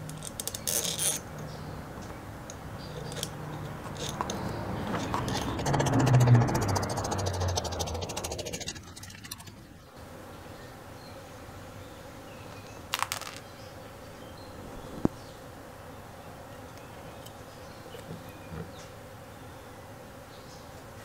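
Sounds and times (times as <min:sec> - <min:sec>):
faint steady buzz: 0:00.0 - 0:21.0
metal parts being handled: 0:03.0 - 0:04.4
whirring: 0:03.0 - 0:09.9.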